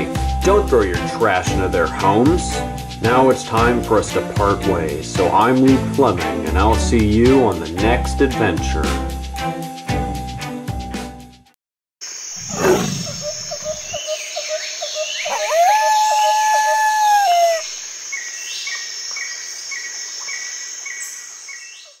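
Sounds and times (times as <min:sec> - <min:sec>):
steady high insect buzz: 0:12.0 - 0:21.6
low animal roar: 0:12.4 - 0:13.2
evenly spaced chirps: 0:12.4 - 0:15.0
birds calling: 0:12.4 - 0:22.0.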